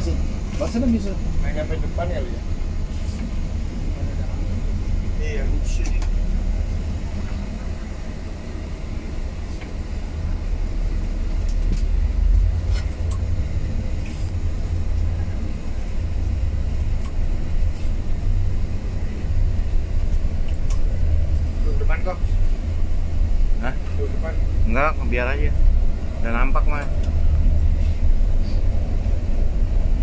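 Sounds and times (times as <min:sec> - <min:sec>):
vehicle driving rumble: 0:00.0 - 0:30.0.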